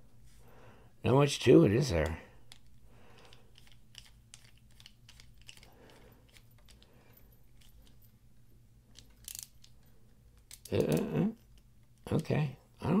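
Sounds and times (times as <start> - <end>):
low steady hum: 0.0 - 13.0
screwdriver clicking: 2.5 - 5.7.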